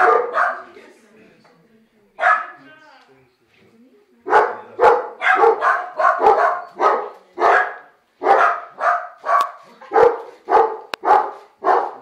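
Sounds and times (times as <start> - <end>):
dog barking: 0.0 - 0.8, 2.2 - 2.6, 4.3 - 12.0.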